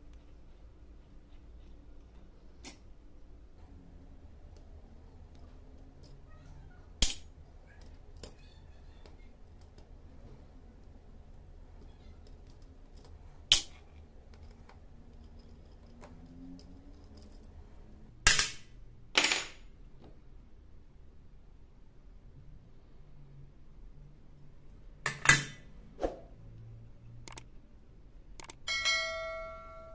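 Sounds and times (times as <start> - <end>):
metal screws clinking: 11.7 - 17.8.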